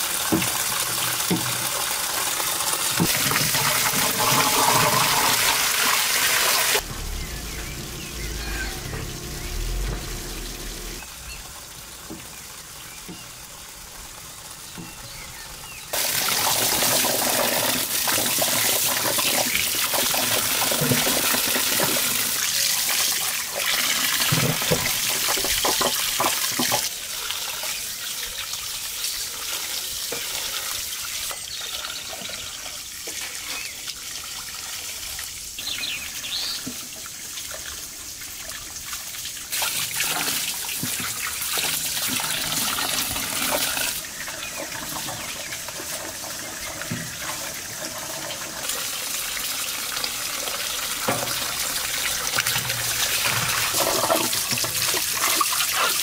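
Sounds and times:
tap water running into basin: 0.0s - 15.2s, 15.9s - 56.0s
hands rinsing vegetables splashing: 2.6s - 6.8s.

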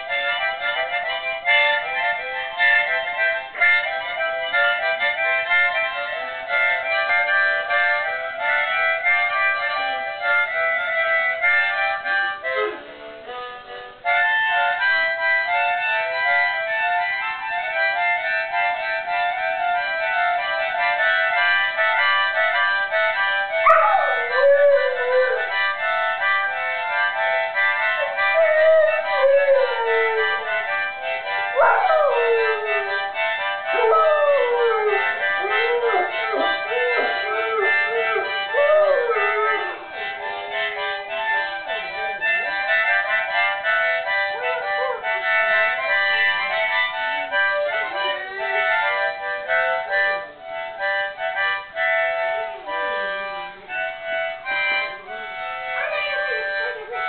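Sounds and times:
music of held chords: 0.0s - 57.0s
dog howling: 23.6s - 25.6s, 28.0s - 30.7s, 31.5s - 39.9s, 55.8s - 57.0s.

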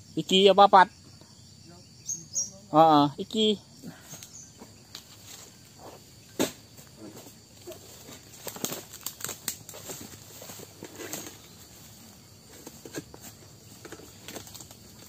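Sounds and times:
pole knocking among palm fronds: 4.2s - 11.8s, 12.4s - 15.0s
crackling rustles and clicks: 7.6s - 11.5s, 12.5s - 15.0s.

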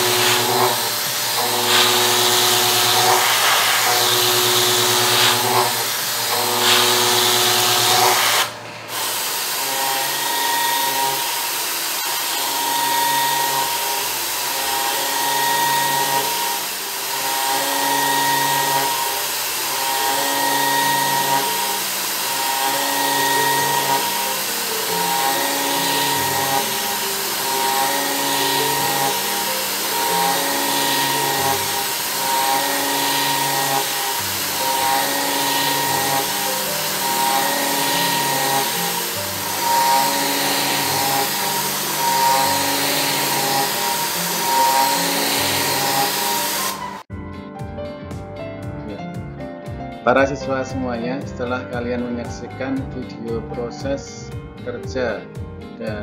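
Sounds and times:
milling cutter cutting metal: 0.0s - 47.1s
background music of held chords: 20.0s - 56.0s.

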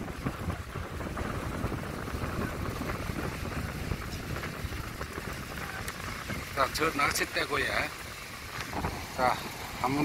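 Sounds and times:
strong wind on microphone: 0.0s - 10.0s.

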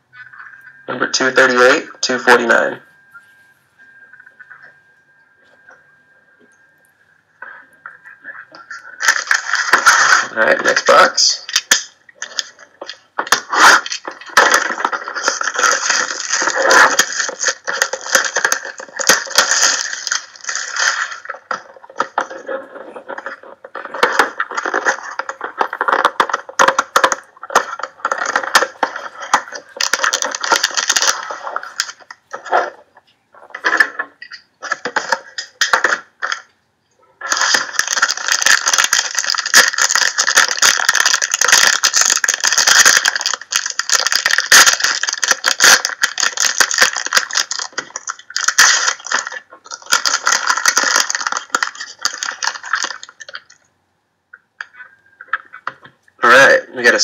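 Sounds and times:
foil wrapper crinkling and tearing: 8.6s - 32.8s, 33.6s - 36.5s, 37.2s - 53.7s.

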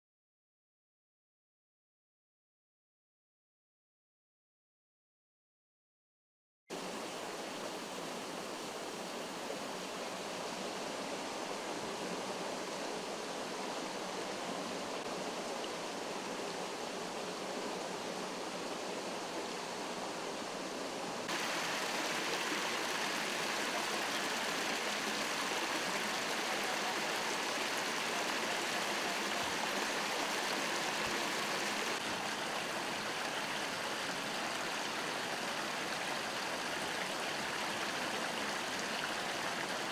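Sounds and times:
water rushing out of broken main: 21.3s - 33.3s.

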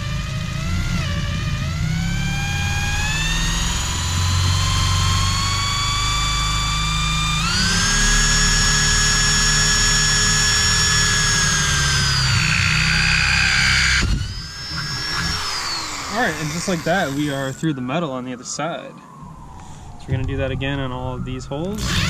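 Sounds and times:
electric drill boring through wood: 0.0s - 17.7s, 21.6s - 22.0s.

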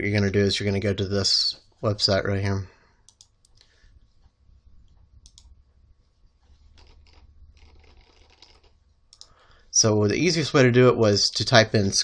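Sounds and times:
low steady hum: 0.0s - 12.0s
keyboard and mouse clicking: 3.1s - 3.7s, 4.9s - 5.5s, 6.7s - 9.4s.

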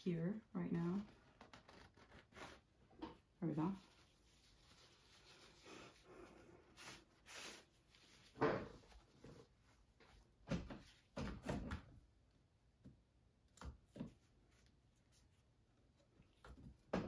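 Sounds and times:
faint rubs and knocks: 1.0s - 11.7s.

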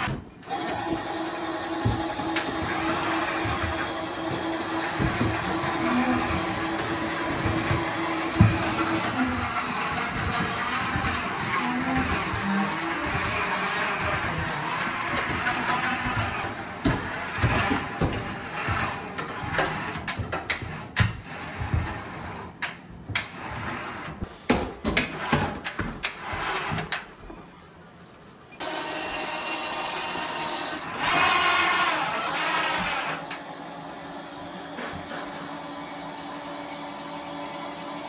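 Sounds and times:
stair-climbing trolley drive running: 0.0s - 23.8s
knocks and clunks on stairs: 0.0s - 27.4s.

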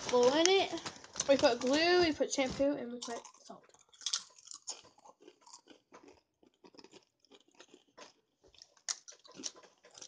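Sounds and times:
tortilla chips crunched and chewed: 3.0s - 10.0s.

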